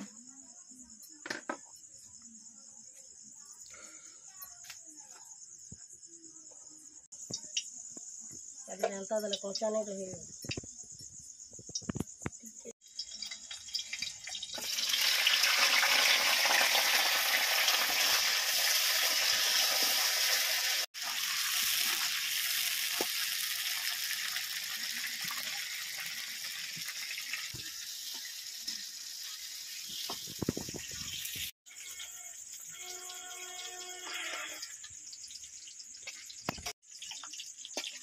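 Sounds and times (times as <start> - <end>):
onions sizzling in hot oil: 12.8 - 38.0.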